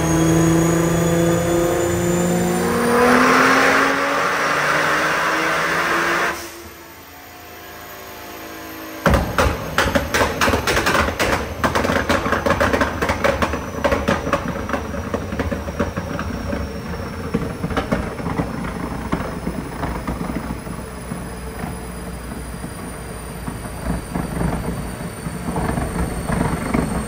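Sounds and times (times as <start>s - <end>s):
car engine revving: 0.0s - 6.8s
exhaust pops and bangs: 9.0s - 27.0s.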